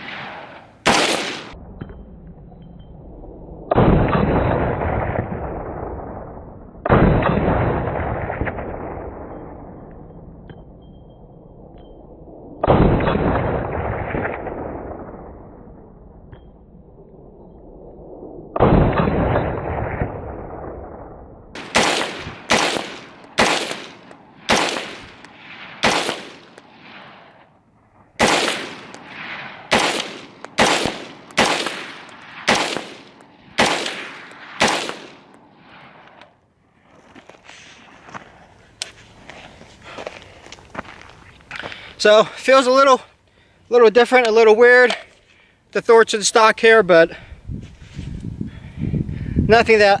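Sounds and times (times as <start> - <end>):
rifle shots with rolling echo: 0.0 - 36.8.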